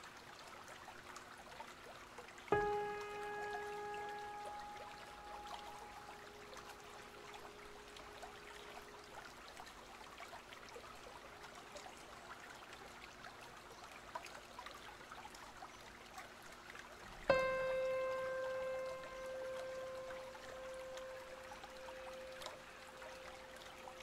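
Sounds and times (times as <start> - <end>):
faint trickling water: 0.0 - 24.0
ambient music tone: 2.5 - 9.1, 17.3 - 24.0.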